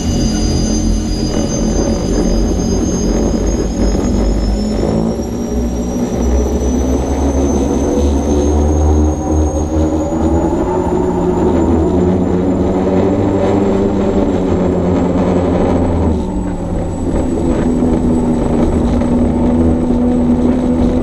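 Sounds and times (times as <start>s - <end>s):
turbine engine whine: 0.0s - 21.0s.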